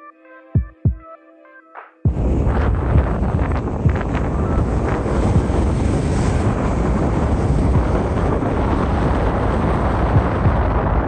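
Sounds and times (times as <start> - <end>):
wind buffeting microphone: 2.1 - 11.0
small irregular thumps: 7.7 - 8.2.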